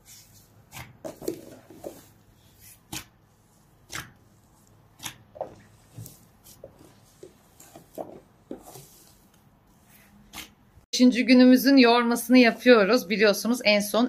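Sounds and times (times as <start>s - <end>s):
hands kneading soft dough: 0.0s - 10.9s.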